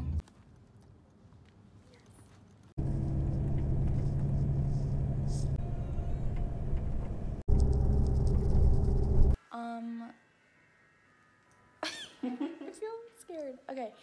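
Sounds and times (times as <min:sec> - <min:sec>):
bus engine drone and road rumble: 0:02.5 - 0:09.4
hum: 0:02.8 - 0:09.4.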